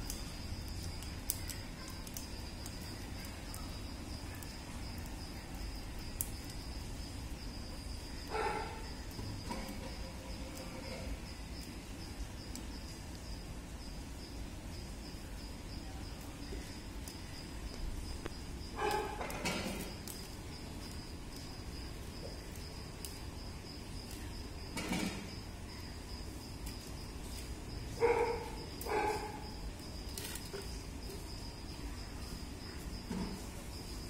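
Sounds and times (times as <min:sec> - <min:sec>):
insects trilling: 0:00.0 - 0:34.0
short insect calls: 0:00.0 - 0:34.0.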